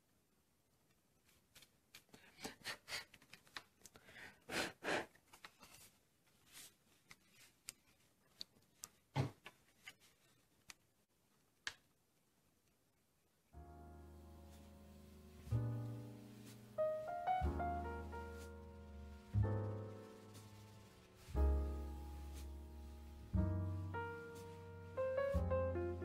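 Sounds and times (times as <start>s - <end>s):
paper rustling swishes: 5.2s - 10.8s, 14.5s - 16.8s, 18.0s - 23.3s.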